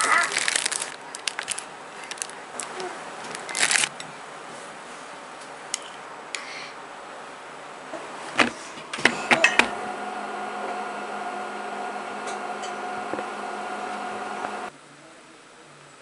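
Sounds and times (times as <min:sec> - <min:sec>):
microwave oven humming: 0:08.5 - 0:14.7.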